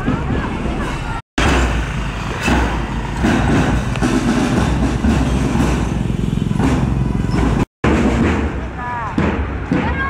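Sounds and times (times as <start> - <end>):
traffic rumble: 0.0 - 10.0
motorcycle engines passing: 1.5 - 7.7.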